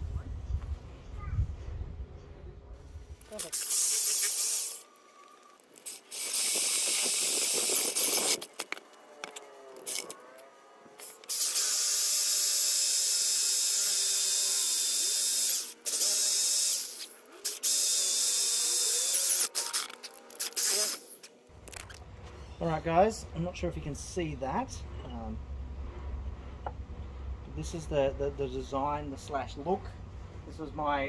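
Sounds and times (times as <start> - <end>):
cordless drill boring wood: 3.3 - 10.2, 11.0 - 21.2.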